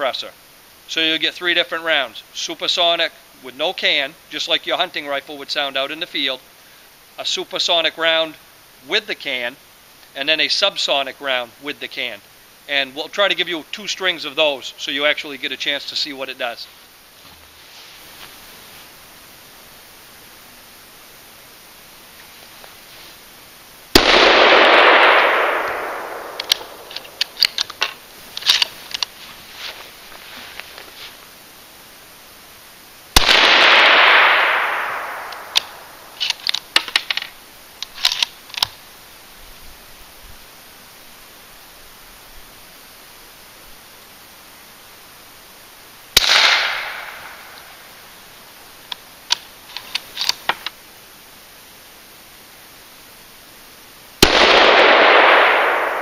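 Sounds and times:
rifle shot with echo: 0:24.0 - 0:27.4, 0:33.2 - 0:36.0, 0:46.2 - 0:47.6, 0:54.2 - 0:56.0
rifle bolt metallic clicks: 0:26.0 - 0:29.1, 0:35.0 - 0:38.7.

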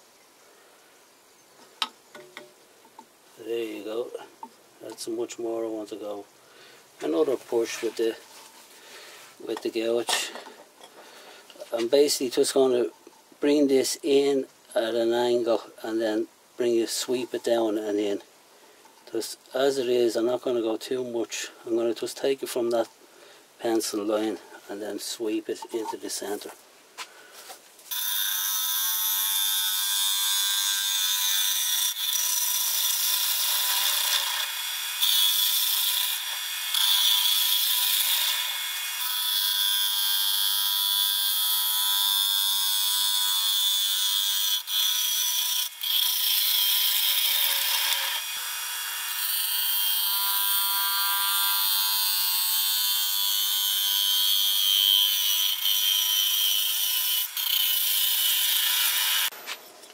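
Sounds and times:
wood lathe whine: 0:27.9 - 0:59.3
gouge cutting wood on a lathe: 0:28.0 - 0:59.3.

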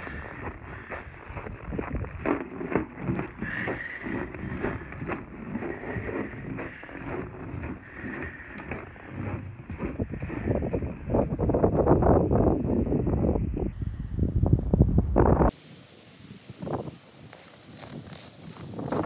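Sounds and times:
footsteps crunching in snow: 0:00.0 - 0:12.2, 0:16.7 - 0:19.0.

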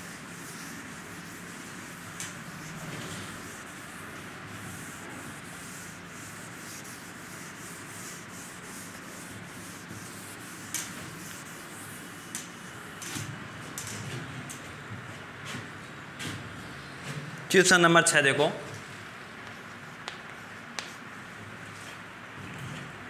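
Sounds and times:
eraser rubbing chalkboard: 0:00.0 - 0:13.3, 0:19.4 - 0:21.0.

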